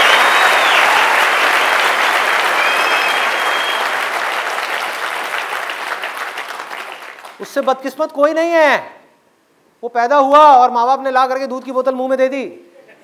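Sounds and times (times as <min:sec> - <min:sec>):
crowd applauding: 0:00.0 - 0:07.5.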